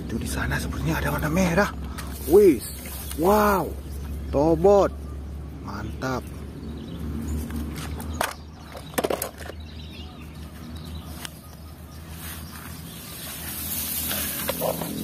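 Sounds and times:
long grass rustling: 0.8 - 4.3, 10.5 - 15.0
toy car clattering into basket: 8.2 - 9.6.

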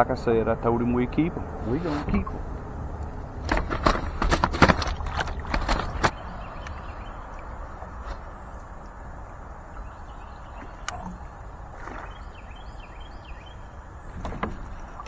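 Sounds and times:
low rumble: 0.0 - 11.4
outdoor background hiss: 0.0 - 15.0
faint bird chirps: 6.0 - 15.0.

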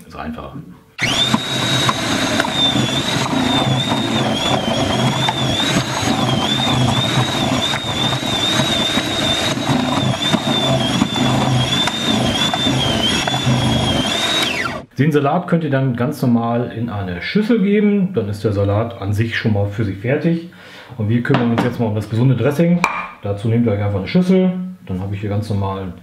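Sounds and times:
food processor motor whine: 1.0 - 14.9
vegetables grinding: 1.0 - 14.9.

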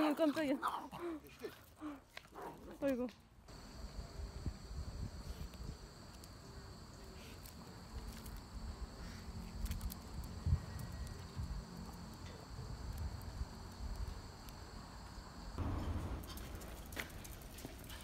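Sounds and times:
faint clicks and scuffs: 7.0 - 15.1.

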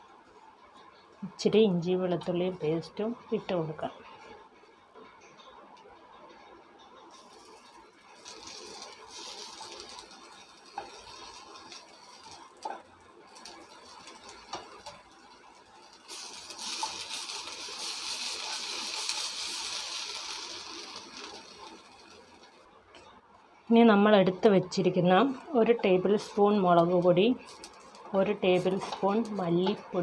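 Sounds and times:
wooden spatula scraping frying pan: 8.2 - 15.0, 16.0 - 21.5, 28.4 - 30.0.

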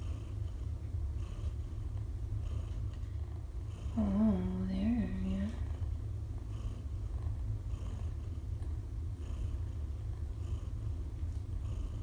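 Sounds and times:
cat purring: 0.0 - 12.0.

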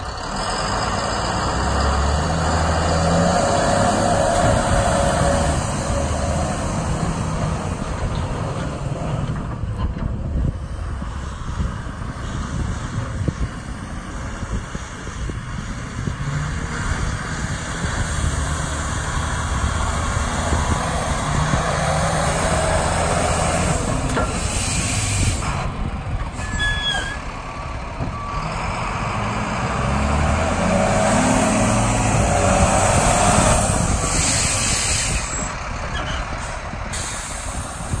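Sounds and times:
dump truck diesel engine: 0.0 - 38.0
air hiss bursts: 24.3 - 25.6, 34.0 - 35.5, 36.9 - 38.0.

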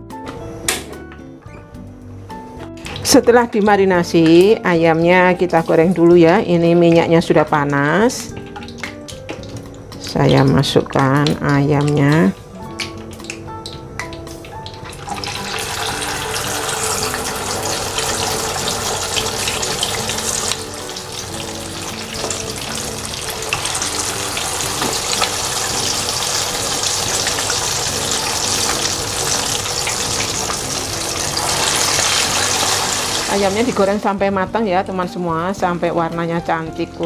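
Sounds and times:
chicken deep-frying in oil: 5.7 - 34.0.

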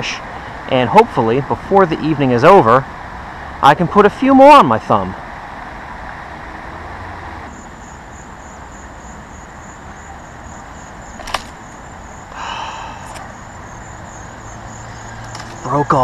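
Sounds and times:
distant road traffic hum: 0.0 - 16.0
insects chirping: 0.0 - 16.0
sharp click: 11.2 - 11.6, 13.0 - 13.3.

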